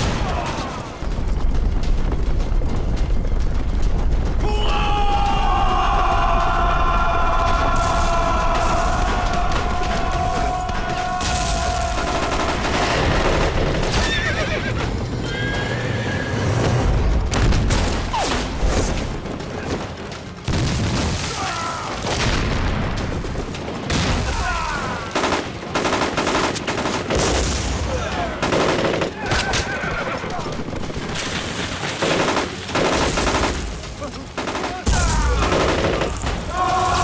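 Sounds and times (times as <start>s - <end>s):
film soundtrack music: 0.0s - 37.0s
explosions: 6.2s - 14.3s, 22.0s - 24.8s
gunfire: 7.8s - 14.2s, 22.0s - 37.0s
horses whinnying: 13.8s - 16.7s, 29.1s - 30.6s.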